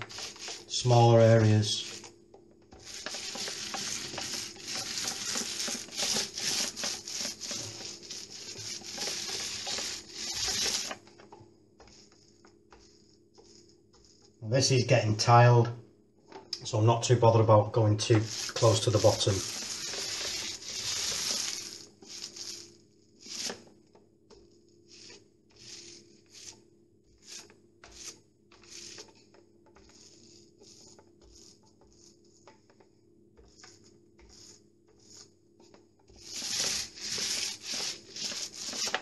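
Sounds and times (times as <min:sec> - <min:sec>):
paint roller on wall: 0:00.0 - 0:39.0.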